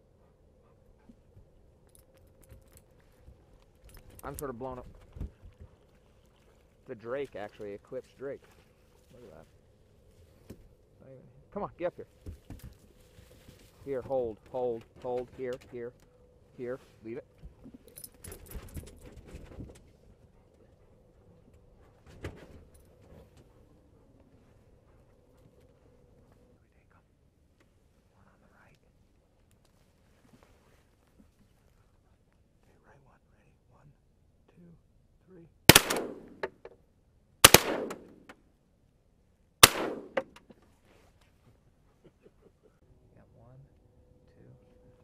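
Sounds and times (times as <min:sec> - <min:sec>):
faint steady hum: 0:00.0 - 0:45.0
soft handling rustles and clicks: 0:01.0 - 0:10.8, 0:12.0 - 0:16.2, 0:27.5 - 0:32.8, 0:40.2 - 0:42.8
shotgun blasts with rolling echo: 0:35.7 - 0:36.5, 0:37.4 - 0:38.2, 0:39.6 - 0:40.3.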